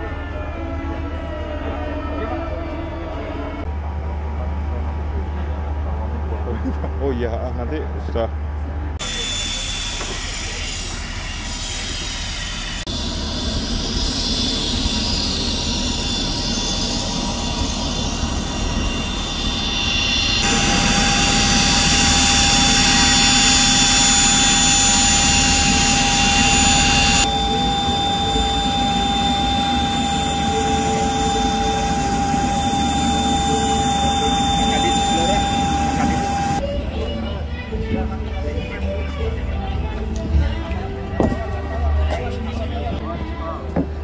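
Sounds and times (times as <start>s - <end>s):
jet engines idling: 12.6s - 36.7s.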